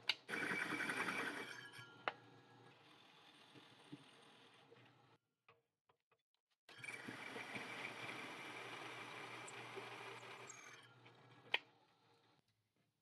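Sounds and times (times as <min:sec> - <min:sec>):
drill press whirring: 0:06.7 - 0:11.5.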